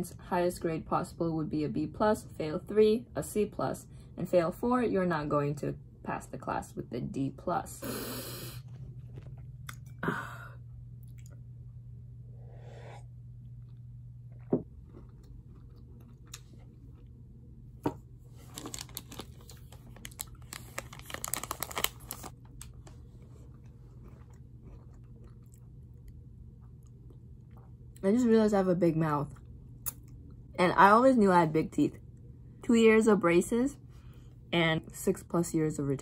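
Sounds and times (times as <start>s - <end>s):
low background hum: 0.0s - 36.0s
person chewing crunchy snack: 13.6s - 17.1s, 23.0s - 27.8s.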